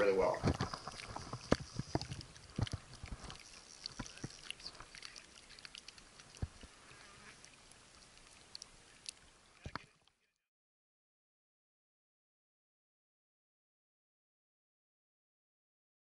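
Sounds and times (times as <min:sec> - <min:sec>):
small waves lapping on rocks: 0:00.0 - 0:10.0.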